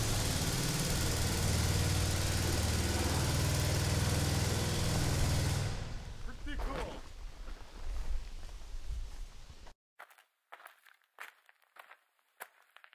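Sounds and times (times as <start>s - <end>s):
engine humming and hissing: 0.0s - 6.4s.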